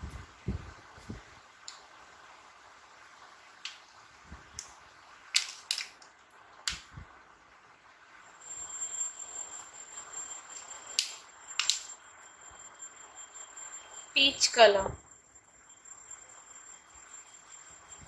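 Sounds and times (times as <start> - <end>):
faint steady hiss: 0.0 - 18.0
thin high whine: 7.0 - 18.0.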